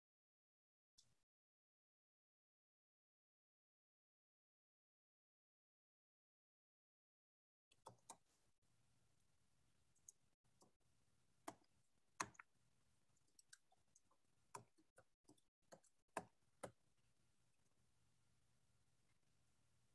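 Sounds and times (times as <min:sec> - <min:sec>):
faint clicks and taps: 0:07.7 - 0:08.4, 0:11.4 - 0:17.8.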